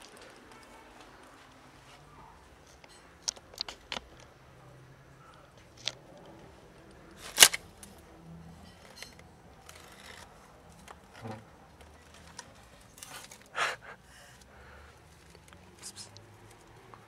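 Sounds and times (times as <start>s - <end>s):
handling crackles and clicks: 2.6s - 4.4s, 5.2s - 8.0s, 8.7s - 13.5s.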